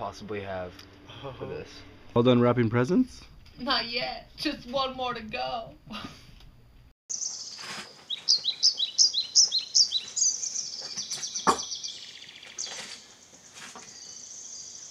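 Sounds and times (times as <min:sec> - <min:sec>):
high bird trill: 0:07.1 - 0:13.3
birds chirping: 0:07.1 - 0:14.9
sharp knock: 0:11.4 - 0:11.7.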